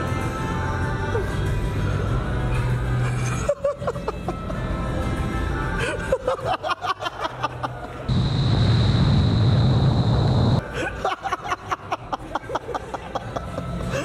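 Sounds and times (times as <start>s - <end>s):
wind tunnel airflow roar: 8.1s - 10.7s
high whine: 8.1s - 10.8s.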